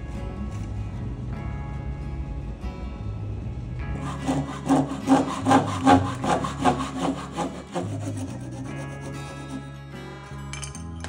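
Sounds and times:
hand saw cutting wood: 0:03.9 - 0:09.8.

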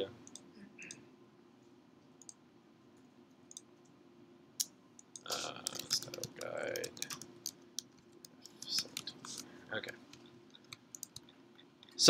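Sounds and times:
low steady hum: 0:00.0 - 0:12.0
computer mouse clicks: 0:03.5 - 0:03.7, 0:04.6 - 0:09.5, 0:10.1 - 0:11.3.

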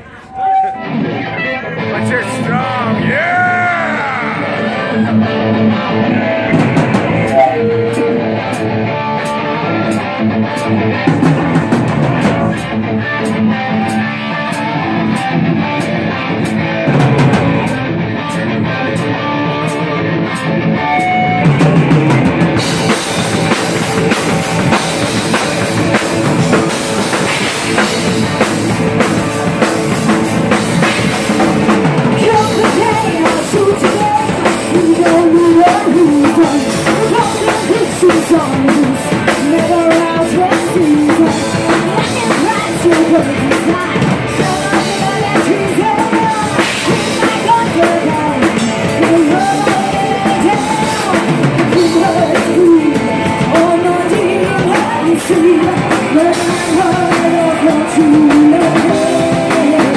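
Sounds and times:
live rock band playing: 0:00.0 - 0:59.9
woman singing lead vocal: 0:32.1 - 0:59.9.

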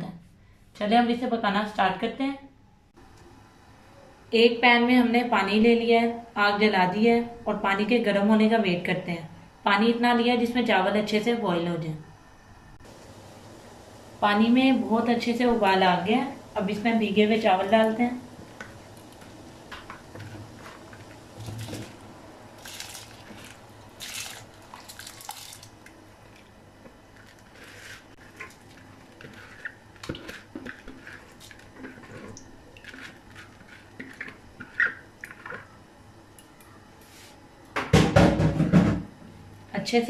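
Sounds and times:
rice pouring into water: 0:22.6 - 0:25.8.

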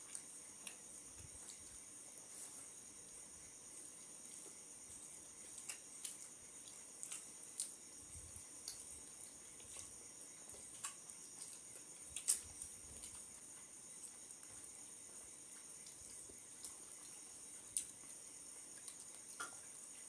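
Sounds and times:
chewing and lip-smacking: 0:04.2 - 0:07.8, 0:08.6 - 0:20.0.

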